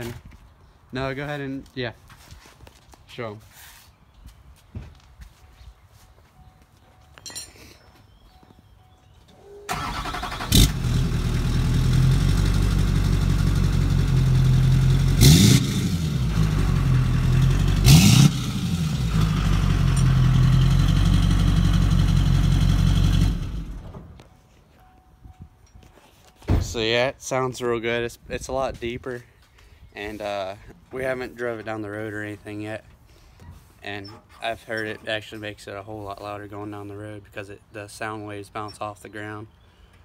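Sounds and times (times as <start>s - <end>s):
diesel engine starting: 9.6s - 24.2s
engine revving: 9.7s - 23.8s.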